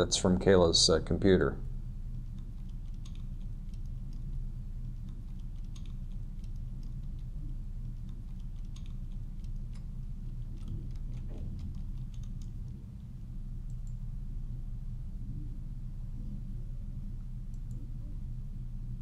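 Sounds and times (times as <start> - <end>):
steady low hum: 0.0 - 19.0
keyboard typing: 2.1 - 4.3, 4.9 - 12.8.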